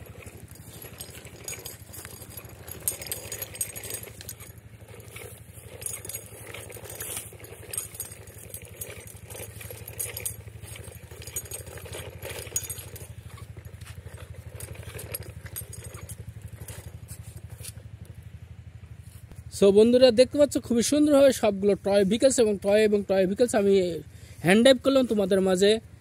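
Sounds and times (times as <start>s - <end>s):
plastic toy rattling and clicking: 0.0s - 17.7s
low hum with flutter: 0.0s - 26.0s.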